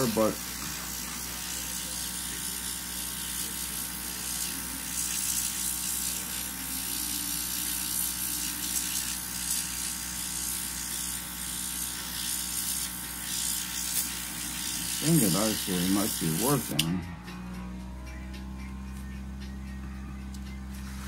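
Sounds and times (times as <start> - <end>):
airbrush hissing: 0.0 - 16.8
compressor buzzing hum: 0.0 - 21.0.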